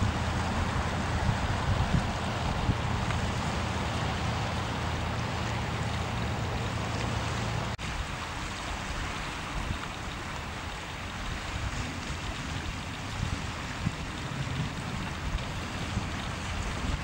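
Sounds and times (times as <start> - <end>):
wind blowing on microphone: 0.0 - 5.7, 7.8 - 17.0.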